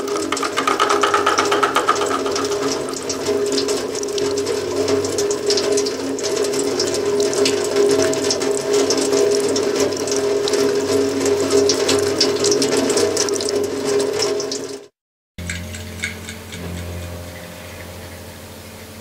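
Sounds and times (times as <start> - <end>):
dry clicking and rattling: 0.0 - 10.2, 15.4 - 17.0
low droning tones: 15.4 - 19.0.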